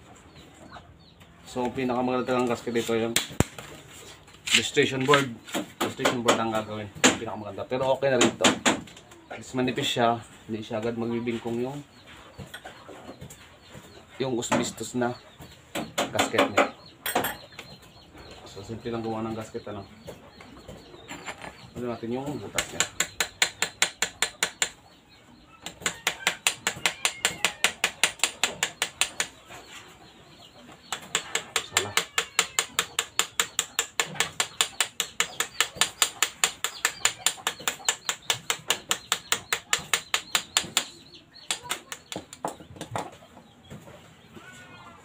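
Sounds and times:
hand tool tapping: 0:22.6 - 0:24.8, 0:25.6 - 0:29.4, 0:30.9 - 0:42.6.

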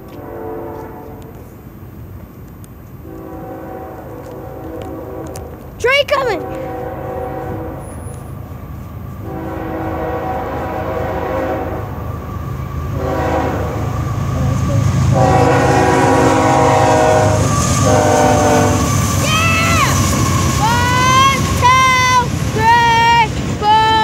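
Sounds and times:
locomotive air horn blasts: 0:00.0 - 0:01.5, 0:03.0 - 0:08.3, 0:09.2 - 0:12.0, 0:13.0 - 0:14.0, 0:15.1 - 0:22.3
diesel locomotive rumble: 0:00.0 - 0:24.0.

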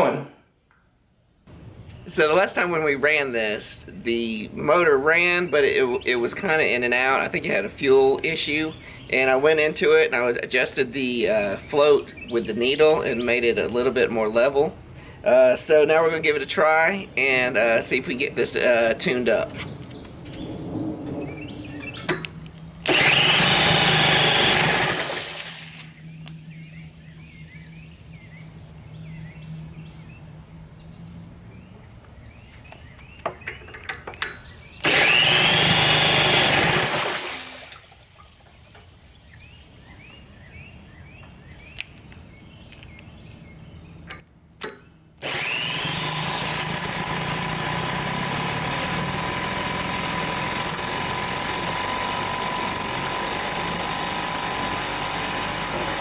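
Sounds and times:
cordless drill cranking motor: 0:22.8 - 0:25.9, 0:34.8 - 0:37.4, 0:45.2 - 0:56.0
outboard motor running: 0:22.8 - 0:28.3, 0:34.8 - 0:37.8, 0:45.2 - 0:56.0.

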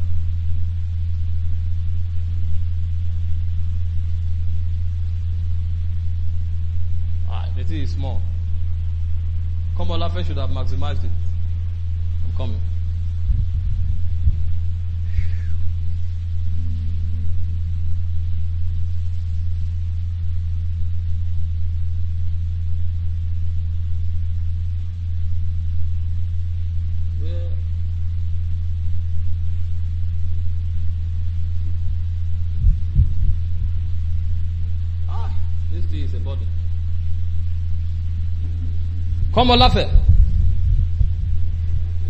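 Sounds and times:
low electrical mains hum: 0:00.0 - 0:42.0
low thumps: 0:08.3 - 0:23.0, 0:28.8 - 0:42.0.

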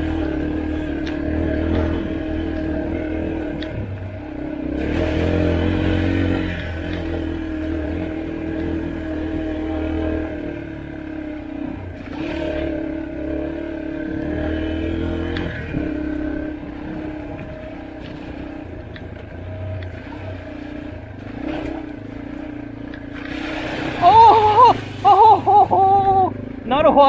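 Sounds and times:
dirt bike engine cruising: 0:00.0 - 0:27.0
tyres splashing through puddle: 0:19.8 - 0:26.4.

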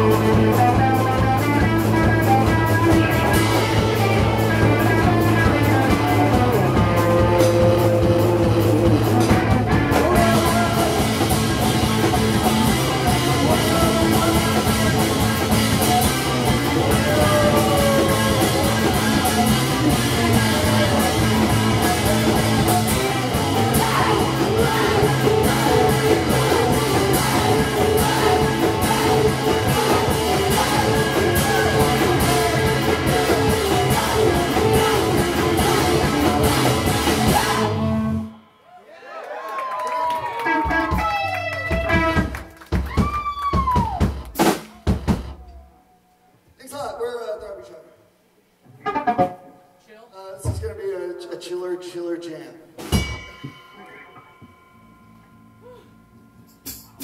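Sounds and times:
drum kit: 0:00.0 - 0:38.3, 0:40.4 - 0:45.8, 0:52.8 - 0:54.6, 0:55.6 - 0:57.0
electric guitar: 0:00.0 - 0:38.4
keyboard: 0:00.0 - 0:38.4.

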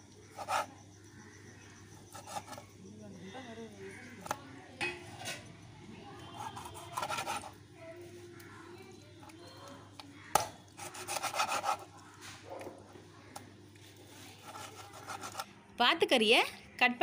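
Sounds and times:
knife sawing on chopping board: 0:00.4 - 0:00.7, 0:06.5 - 0:07.5, 0:10.8 - 0:11.9, 0:14.4 - 0:15.4.

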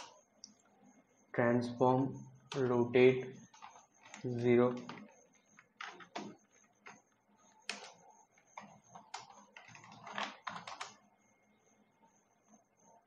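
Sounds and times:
keyboard typing: 0:02.5 - 0:11.2.

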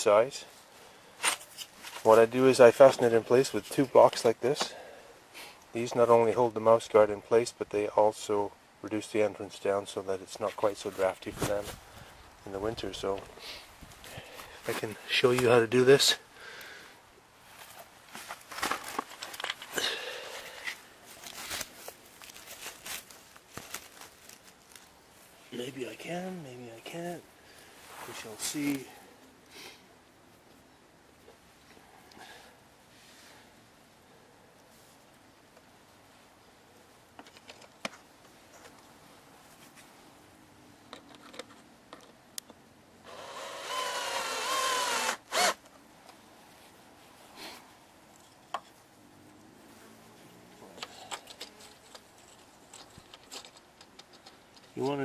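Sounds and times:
crackles and rustles from handling: 0:00.4 - 0:04.4, 0:10.4 - 0:15.7, 0:17.4 - 0:26.2, 0:27.6 - 0:29.4, 0:34.5 - 0:40.2, 0:49.6 - 0:55.0
footsteps on dry pine needles: 0:20.5 - 0:25.4
cordless drill driving a screw: 0:43.1 - 0:45.6.

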